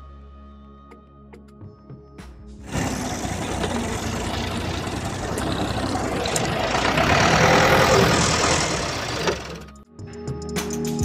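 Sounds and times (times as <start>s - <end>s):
tractor engine running: 2.7s - 9.8s.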